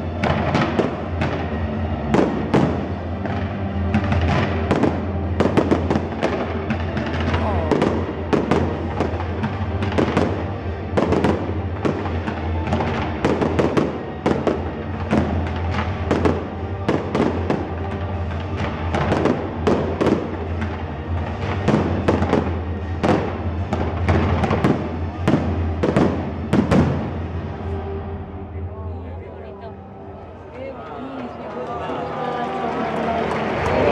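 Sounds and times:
fireworks bursting: 0.0 - 28.0.

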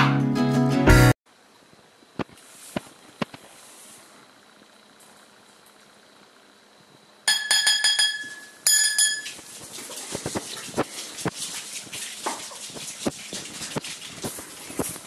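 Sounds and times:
metal spoon tapping ceramic bowl: 7.3 - 9.4.

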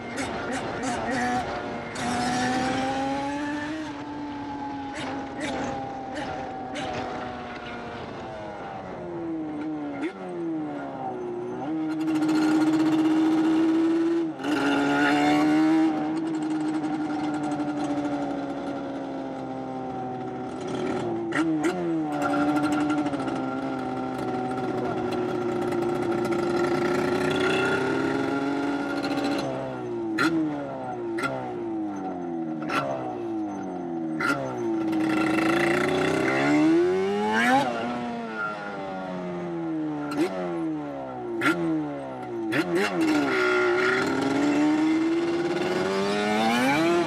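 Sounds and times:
two-stroke engine revving: 0.0 - 4.0, 11.6 - 19.2, 20.2 - 33.2, 34.2 - 47.0.

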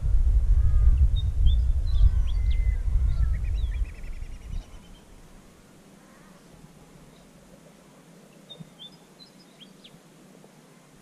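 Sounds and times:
wind rumbling on microphone: 0.0 - 5.5
birds chirping: 0.6 - 7.4, 8.2 - 10.0.

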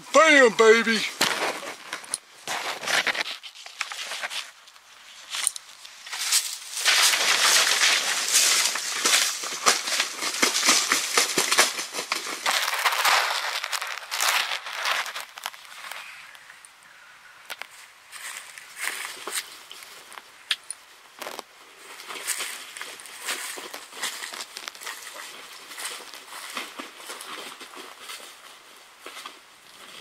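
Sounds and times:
wings beating on dry leaves: 6.0 - 16.1, 22.0 - 28.4.

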